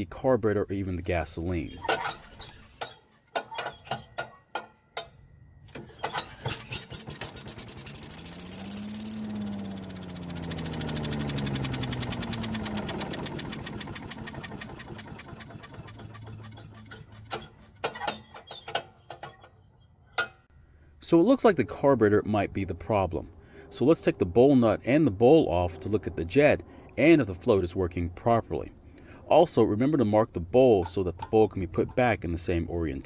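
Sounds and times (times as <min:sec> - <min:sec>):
small engine revving and sputtering: 0:06.3 - 0:17.6.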